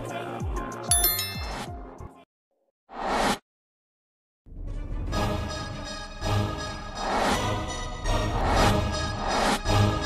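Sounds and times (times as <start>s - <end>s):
notification bell ding: 0.9s - 1.8s.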